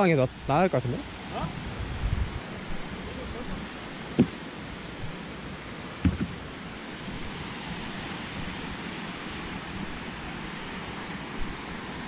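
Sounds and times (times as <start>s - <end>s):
sea surf: 0.0s - 12.0s
wind on microphone: 0.3s - 5.3s
short thump: 4.2s - 4.4s, 6.0s - 6.4s.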